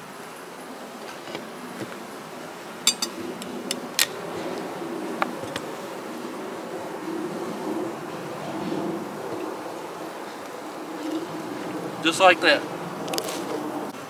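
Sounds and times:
honeybees buzzing: 0.0 - 14.0
glass jar clinking: 2.9 - 3.2.

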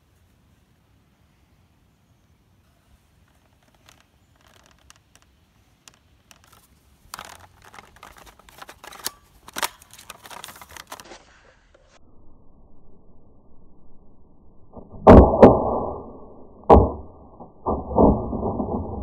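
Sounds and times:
rifle clicks and rattles: 3.2 - 11.2.

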